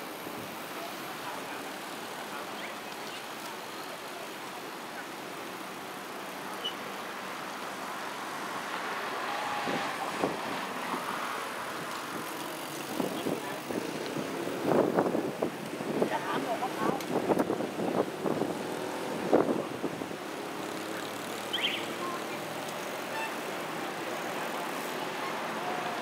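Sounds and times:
bicycle tyres hissing: 0:00.0 - 0:26.0
faint voices: 0:00.5 - 0:07.6, 0:19.2 - 0:26.0.

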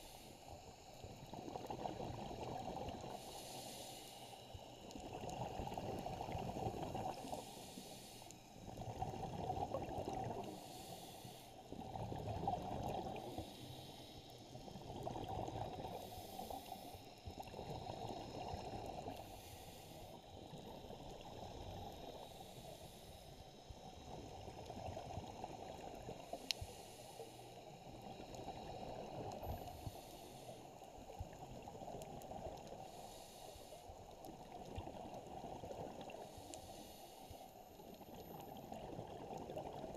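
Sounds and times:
diver breathing through regulator: 0:03.1 - 0:04.5, 0:07.1 - 0:08.4, 0:10.4 - 0:11.6, 0:15.8 - 0:17.0, 0:19.1 - 0:20.2, 0:21.9 - 0:23.4, 0:26.2 - 0:27.7, 0:29.4 - 0:30.7, 0:32.8 - 0:33.9, 0:36.1 - 0:37.8
exhaled bubbles rumbling: 0:08.7 - 0:10.5, 0:11.8 - 0:13.2.

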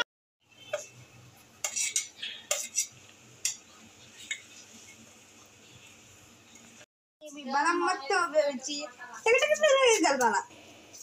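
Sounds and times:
steel utensils clinking and scraping: 0:01.6 - 0:03.6.

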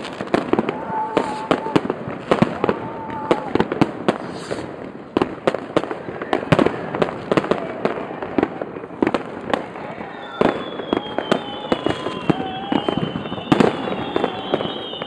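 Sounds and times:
fireworks bangs and cracks: 0:00.0 - 0:15.0
firework whistle falling in pitch: 0:00.6 - 0:03.6, 0:10.0 - 0:15.0.

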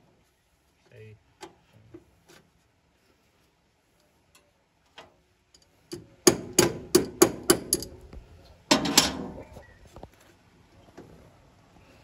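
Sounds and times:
wrench knocking on metal panel: 0:05.9 - 0:08.0.

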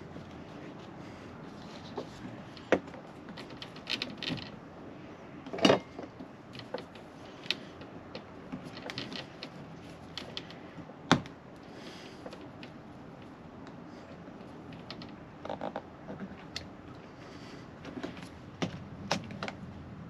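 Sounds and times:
window trim clicking and creaking: 0:02.0 - 0:04.6, 0:05.6 - 0:10.6.

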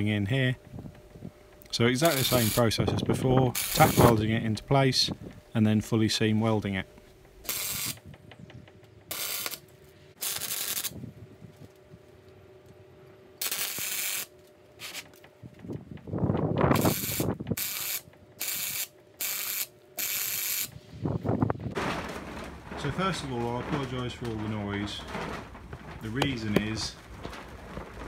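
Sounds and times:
welding arc crackling: 0:01.6 - 0:02.8, 0:03.4 - 0:04.3, 0:07.2 - 0:08.2, 0:09.0 - 0:11.0, 0:13.4 - 0:15.2, 0:16.7 - 0:20.8
low rustling noise: 0:20.7 - 0:28.0.

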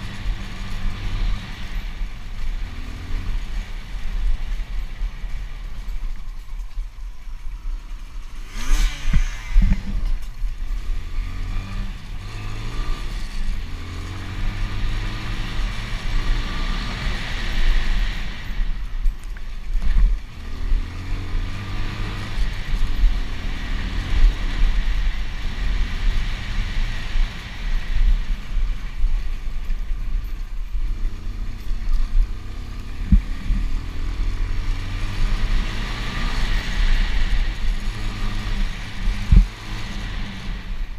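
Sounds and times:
wind rumble on microphone: 0:00.0 - 0:40.9
motorbike engine revving: 0:08.0 - 0:29.9, 0:30.8 - 0:40.9.

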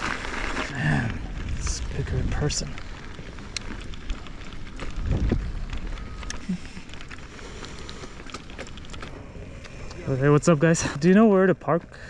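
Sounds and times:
bike tyres rumbling on dirt: 0:00.0 - 0:12.0
grit crackling under tyres: 0:00.0 - 0:12.0
wind on microphone: 0:04.5 - 0:06.4.

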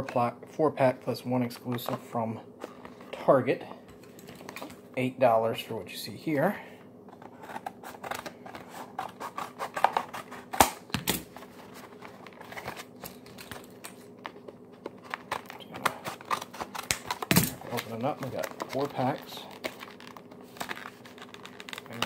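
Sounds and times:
plastic crinkling: 0:11.6 - 0:22.0.

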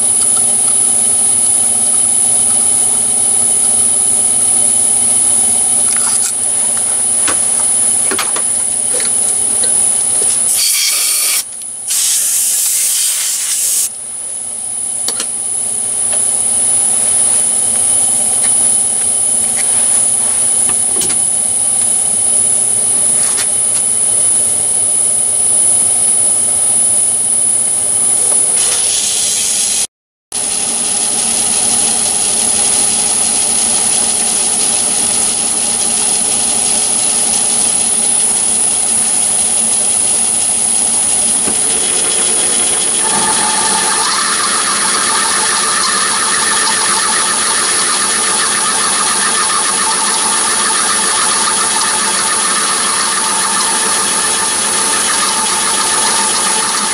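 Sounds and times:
machine hum: 0:00.0 - 0:28.7, 0:32.1 - 0:56.9
high whine: 0:00.0 - 0:30.5, 0:32.1 - 0:56.9
loud hissing bursts: 0:10.6 - 0:13.9.

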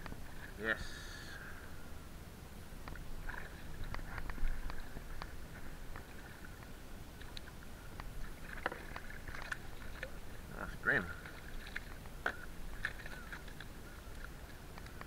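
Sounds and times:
fishing gear clicks and taps: 0:11.6 - 0:15.0.

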